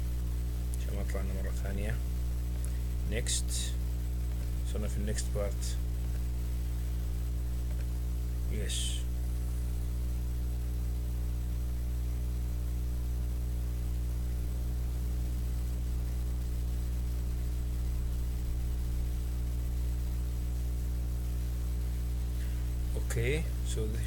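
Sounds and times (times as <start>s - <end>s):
electrical mains hum: 0.0s - 24.0s.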